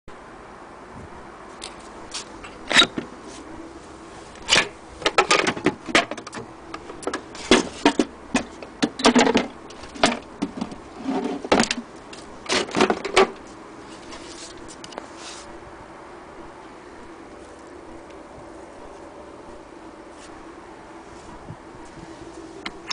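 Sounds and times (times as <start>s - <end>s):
wooden case clicks and scrapes: 4.4s - 13.4s.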